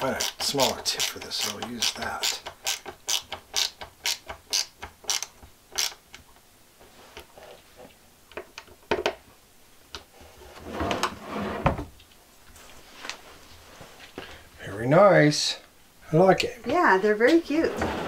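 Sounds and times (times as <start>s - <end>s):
ratcheting screwdriver clicking: 0.2s - 6.0s
rustle: 12.2s - 14.3s.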